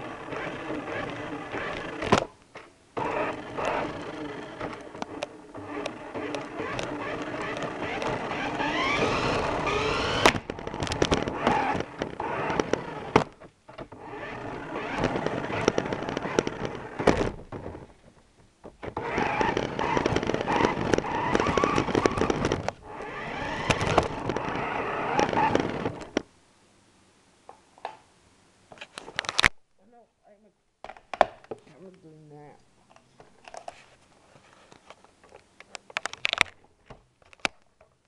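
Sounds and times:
rc car motor whirring: 0:00.0 - 0:02.1, 0:03.0 - 0:13.3, 0:13.9 - 0:17.2, 0:18.9 - 0:26.2.

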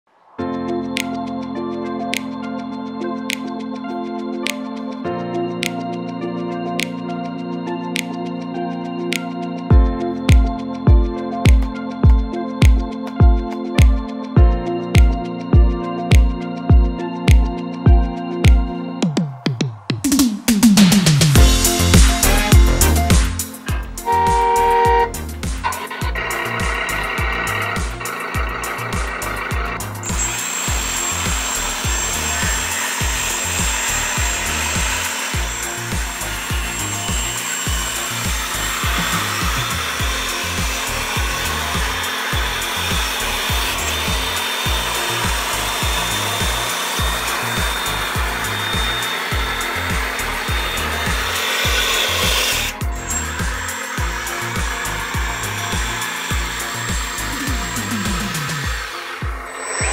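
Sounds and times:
background music with beat: 0:00.4 - 0:59.9
toy bulldozer pump whirring: 0:21.5 - 0:59.9.

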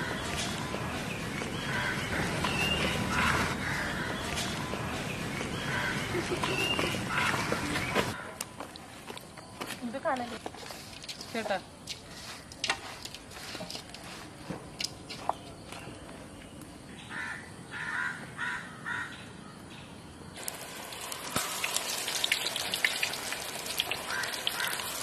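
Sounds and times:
crow cawing: 0:01.6 - 0:04.6, 0:05.6 - 0:06.2, 0:06.9 - 0:08.4, 0:17.1 - 0:19.2, 0:24.0 - 0:25.0
crackling hiss with clicks: 0:20.4 - 0:25.0.

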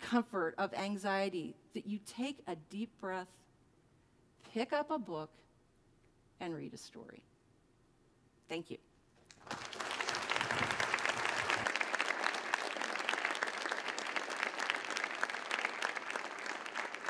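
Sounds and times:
audience applauding: 0:09.3 - 0:17.0.

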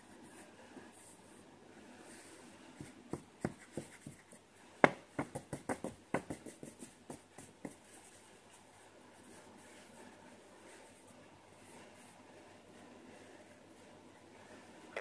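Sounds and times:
toy knocking against book pages: 0:04.8 - 0:07.8.

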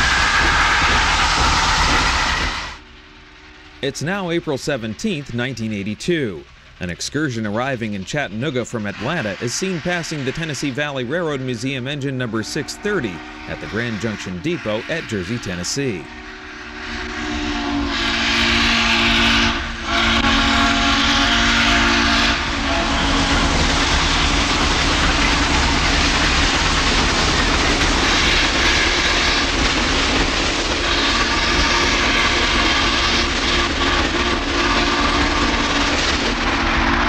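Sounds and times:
train rumbling past: 0:00.0 - 0:37.0
steam locomotive whistle chord: 0:08.7 - 0:24.6, 0:30.8 - 0:35.8.

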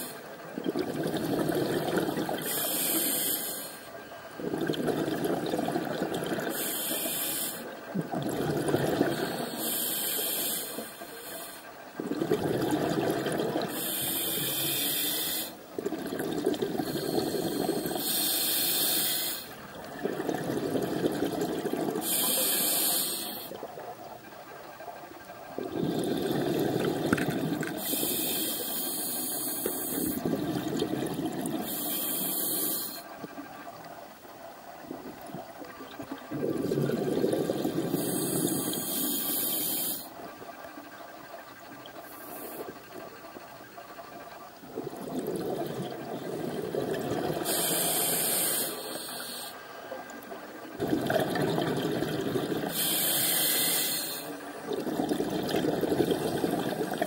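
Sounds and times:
gurgling exhaled bubbles: 0:00.6 - 0:03.2, 0:04.4 - 0:06.6, 0:07.9 - 0:09.6, 0:12.0 - 0:23.8, 0:25.5 - 0:28.5, 0:29.6 - 0:33.3, 0:34.8 - 0:39.9, 0:44.6 - 0:48.6, 0:50.6 - 0:57.0
hissing regulator inhalation: 0:00.9 - 0:03.9, 0:06.0 - 0:07.7, 0:08.5 - 0:12.6, 0:13.3 - 0:23.6, 0:25.6 - 0:33.1, 0:36.3 - 0:40.1, 0:44.8 - 0:49.7, 0:50.7 - 0:57.0.

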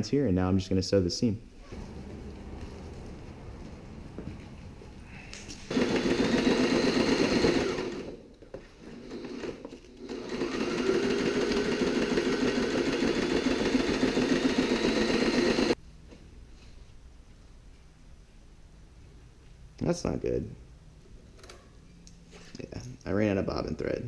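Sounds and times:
sewing machine stitching: 0:05.7 - 0:08.2, 0:08.9 - 0:15.8.

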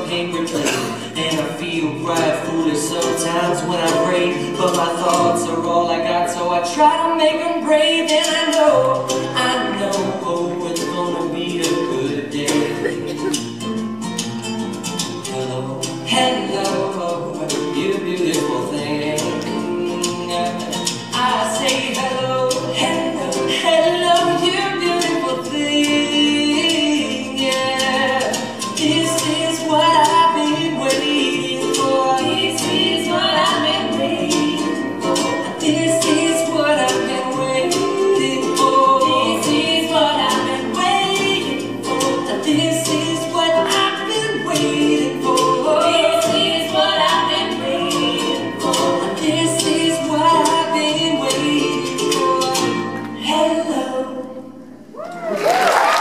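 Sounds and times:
upright bass: 0:00.0 - 0:53.8
acoustic guitar: 0:00.0 - 0:56.0
ukulele: 0:00.0 - 0:56.0
voices singing in harmony: 0:15.3 - 0:54.4.

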